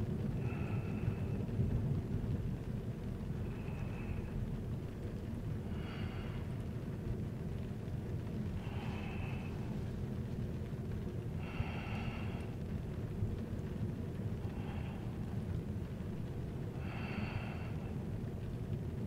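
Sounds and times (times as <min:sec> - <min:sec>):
sleeping person breathing: 0:05.6 - 0:06.6, 0:08.6 - 0:09.8, 0:11.4 - 0:12.6, 0:14.4 - 0:15.3, 0:16.8 - 0:18.0.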